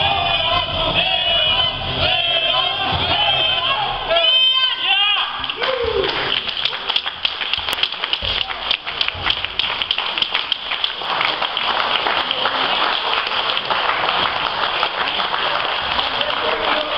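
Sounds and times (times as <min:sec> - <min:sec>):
crowd chatter: 0:00.0 - 0:16.9
spectators clapping: 0:05.3 - 0:16.9.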